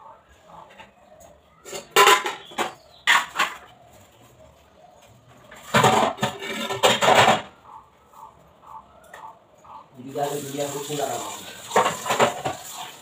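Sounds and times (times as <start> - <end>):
steel utensils clattering: 1.7 - 3.7, 5.6 - 7.5, 11.6 - 13.0.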